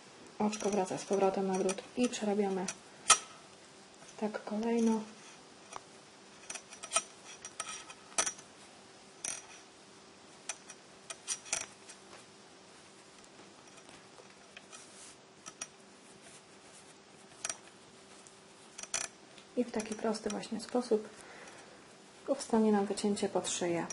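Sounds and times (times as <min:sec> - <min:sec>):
faint steady hum: 0:00.0 - 0:23.9
knitting needles clicking: 0:18.8 - 0:21.0.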